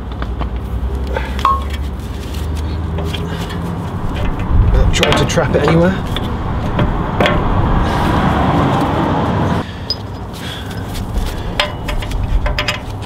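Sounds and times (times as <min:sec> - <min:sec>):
steady rushing noise: 0:03.4 - 0:10.1.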